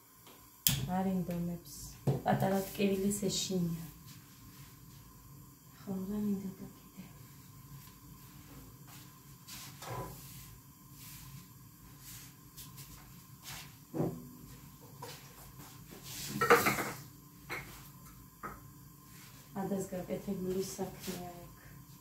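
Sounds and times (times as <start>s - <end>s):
kitchen clatter: 16.3s - 17.7s
dishes and cupboards knocking: 16.4s - 17.7s.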